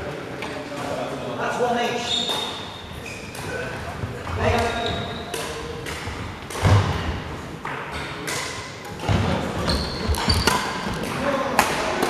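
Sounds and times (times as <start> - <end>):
shoe squeak: 2.0 - 3.7, 4.4 - 5.4, 9.6 - 11.0.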